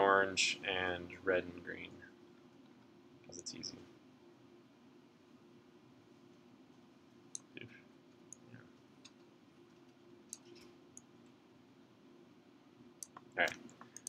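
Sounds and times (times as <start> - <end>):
low room hum: 0.0 - 14.0
computer mouse clicks: 8.3 - 11.1, 13.0 - 14.0.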